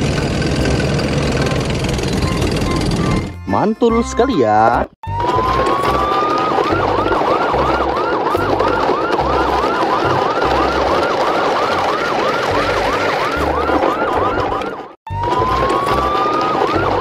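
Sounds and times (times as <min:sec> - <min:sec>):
electronic siren yelping: 0:02.1 - 0:03.6, 0:05.0 - 0:17.0.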